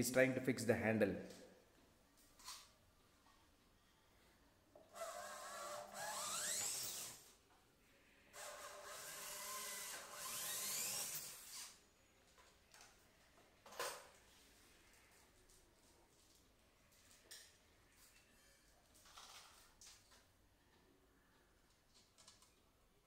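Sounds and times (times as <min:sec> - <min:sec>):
electric drill boring wood: 0:04.9 - 0:07.2, 0:08.4 - 0:11.8.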